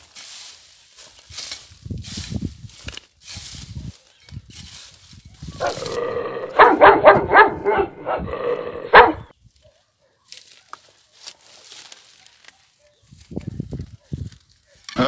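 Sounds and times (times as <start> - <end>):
rustling through dry grass: 0.0 - 15.0
dog yelping and barking: 5.6 - 9.3.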